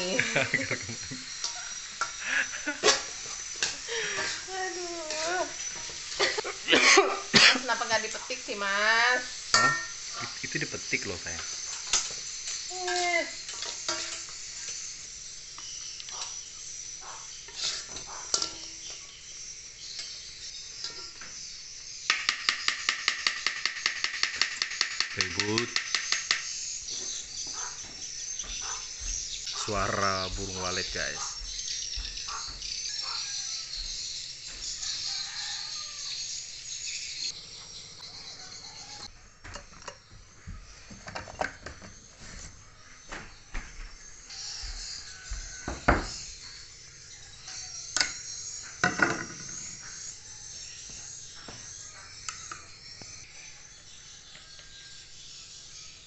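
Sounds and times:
faint sizzle: 0.0 - 23.8
swiftlets chirping: 7.7 - 39.1
metal spoon scraping wok: 9.4 - 10.4, 13.4 - 14.8, 17.4 - 18.9.

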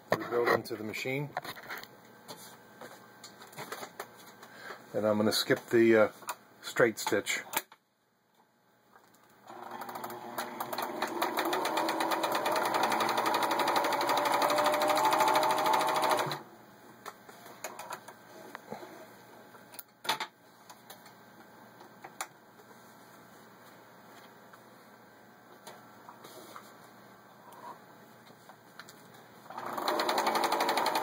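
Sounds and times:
sewing machine needle clatter: 9.5 - 16.4, 29.5 - 31.0.

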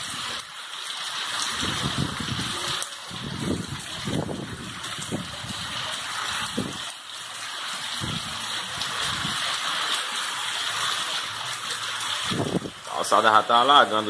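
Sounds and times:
heavy rain on pavement: 0.0 - 14.0
wind gusting against microphone: 1.4 - 6.9, 7.9 - 9.6, 12.1 - 13.0.

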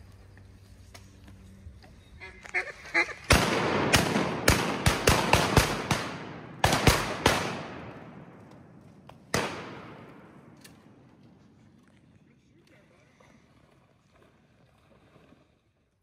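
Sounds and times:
ducks quacking: 2.1 - 3.3
shotgun blasts echoing: 3.3 - 8.4, 9.3 - 10.6.

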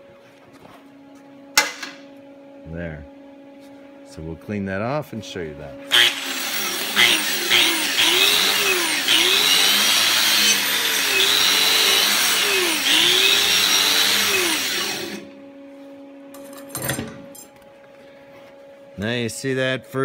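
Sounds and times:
angle grinder wire wheel brushing steel: 5.9 - 15.2.

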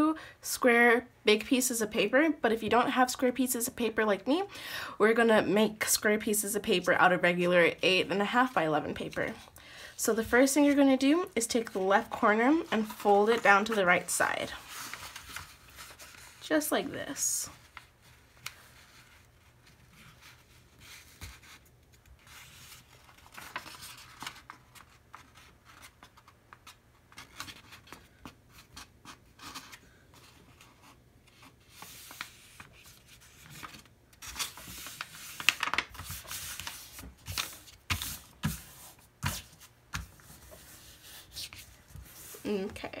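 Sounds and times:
paper rustling and creasing: 10.2 - 16.5, 17.5 - 28.3, 29.4 - 42.9.

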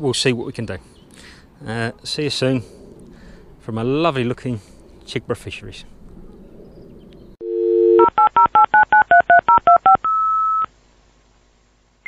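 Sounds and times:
long single beep: 7.4 - 10.7
telephone dial tone: 7.4 - 10.7
touch-tone keypad beeps: 7.6 - 10.7.

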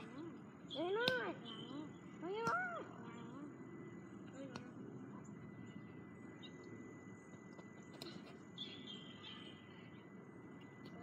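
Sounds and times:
faint bird chirps: 0.0 - 4.5, 5.1 - 7.3, 8.0 - 11.0.

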